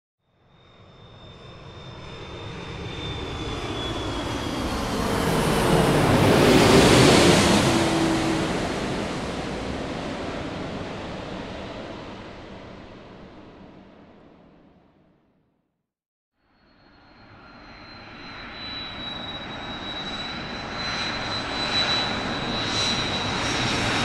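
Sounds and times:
airplane flying over: 0:00.4 - 0:15.1, 0:16.7 - 0:24.0.

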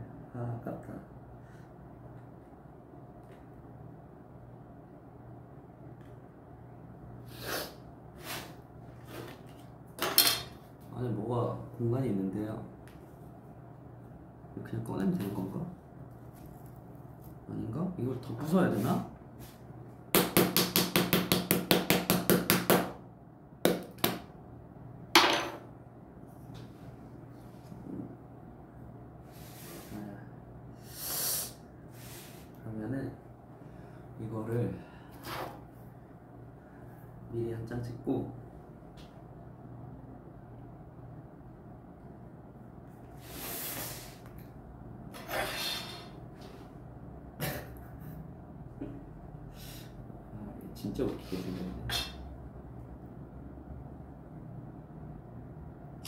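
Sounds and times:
small hammer tapping chocolate shell: 0:20.2 - 0:23.0, 0:23.6 - 0:24.2
person breathing out: 0:30.8 - 0:32.5, 0:45.2 - 0:46.2.

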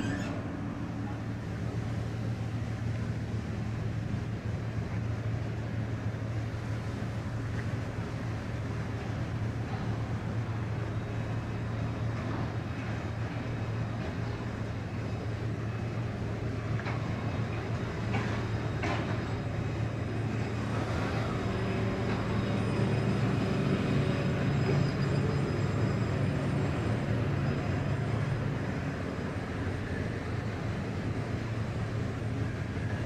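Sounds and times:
electric tram humming and rumbling: 0:00.0 - 0:33.0
tram clicks: 0:16.5 - 0:25.5.

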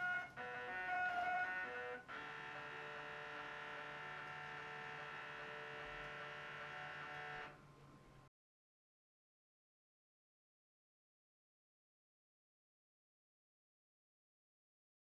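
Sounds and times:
model railroad motor whine: 0:00.0 - 0:07.6.

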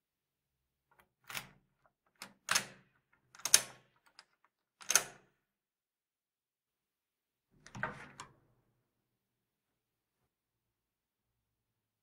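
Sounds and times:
door lock clicks and clunks: 0:02.2 - 0:05.3.

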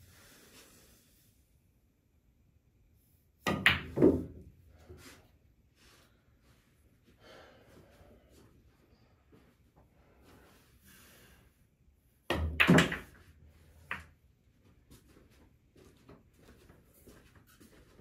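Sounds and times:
billiard balls colliding: 0:03.4 - 0:04.6, 0:12.3 - 0:14.2.

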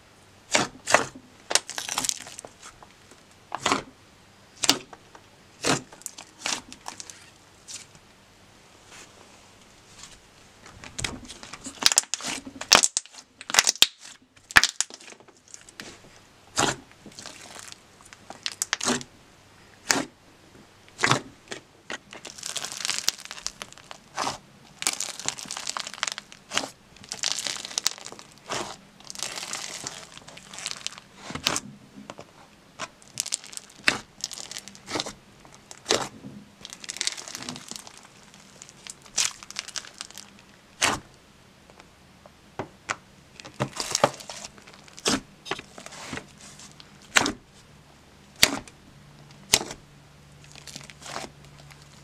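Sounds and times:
foam bead slime crackling: 0:01.5 - 0:02.8, 0:05.6 - 0:07.9, 0:11.3 - 0:19.1, 0:22.1 - 0:31.6, 0:32.8 - 0:41.1, 0:43.4 - 0:47.3, 0:50.4 - 0:52.0.

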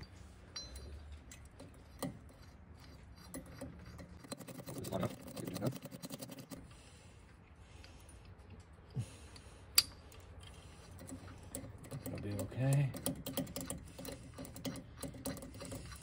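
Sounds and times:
hand ratchet clicking: 0:11.0 - 0:16.0.

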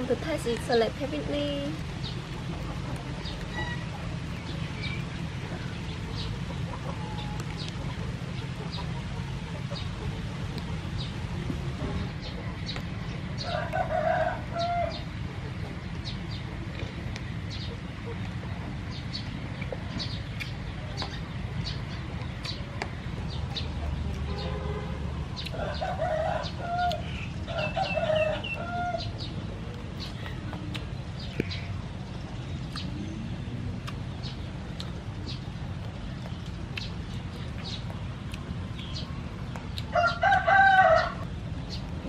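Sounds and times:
steady low hum: 0:00.0 - 0:42.0
rooster crowing: 0:25.6 - 0:29.1, 0:39.9 - 0:41.3.

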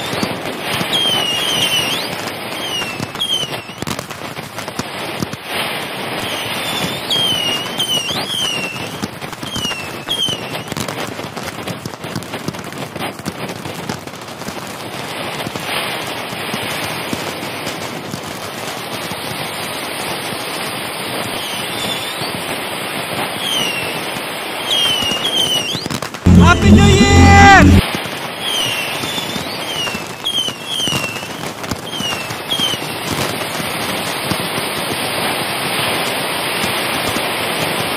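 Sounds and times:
high falling firework whistles: 0:00.0 - 0:04.0, 0:06.1 - 0:10.8, 0:21.2 - 0:22.5, 0:23.2 - 0:27.6, 0:28.3 - 0:33.3
fireworks crackling and popping: 0:00.0 - 0:37.9.

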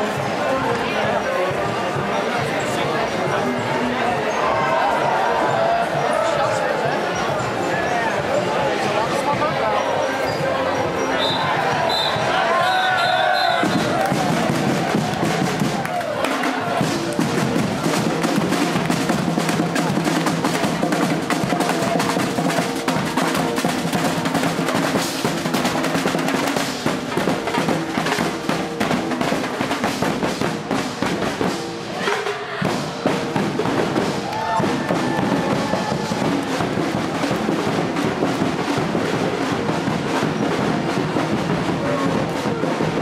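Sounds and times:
snare drum rolls: 0:11.2 - 0:43.0
bass drum beats: 0:13.3 - 0:43.0.

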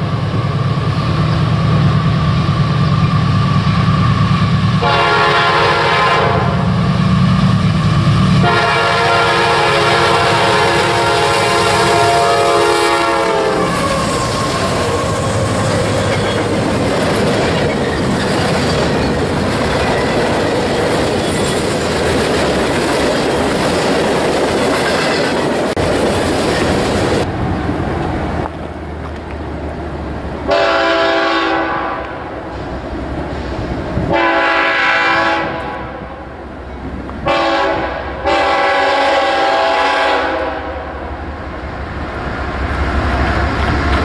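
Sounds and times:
locomotive horn chord: 0:04.8 - 0:06.7, 0:08.4 - 0:15.3, 0:30.5 - 0:32.3, 0:34.1 - 0:36.2, 0:37.2 - 0:41.0
freight cars rumbling and clattering: 0:13.6 - 0:30.5, 0:41.4 - 0:44.0.

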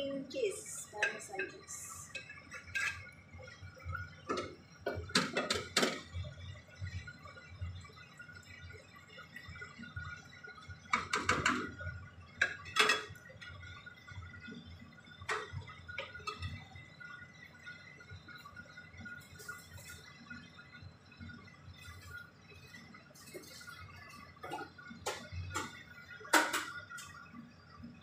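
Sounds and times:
spoon scraping a frying pan: 0:01.0 - 0:03.2.

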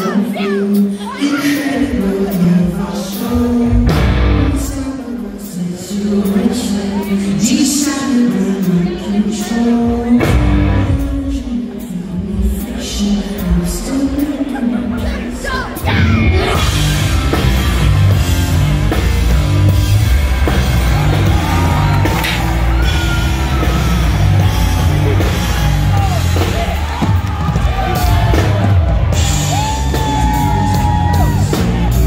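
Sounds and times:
man singing and yelling: 0:00.0 - 0:17.4
live rock band: 0:00.0 - 0:32.0.

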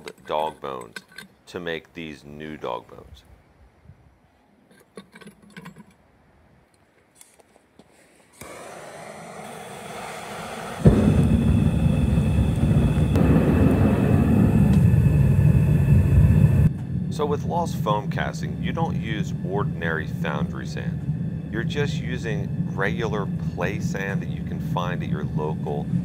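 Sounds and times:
gas hissing: 0:08.3 - 0:26.0
burner roaring: 0:08.4 - 0:25.1.

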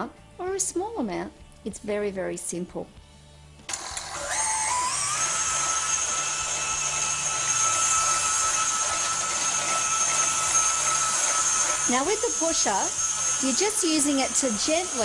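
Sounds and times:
stand mixer motor whining: 0:03.7 - 0:15.0.

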